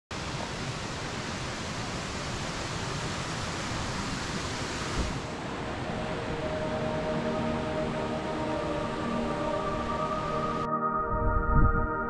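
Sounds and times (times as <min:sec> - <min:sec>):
waterfall rushing: 0:00.2 - 0:10.7
music: 0:05.8 - 0:12.0.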